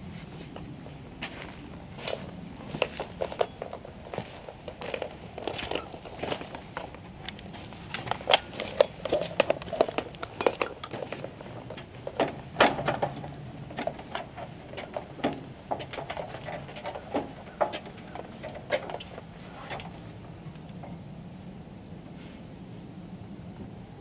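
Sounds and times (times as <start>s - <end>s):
boots on metal ladder rungs: 0.4s - 20.1s
tool belt jangling: 4.9s - 12.2s.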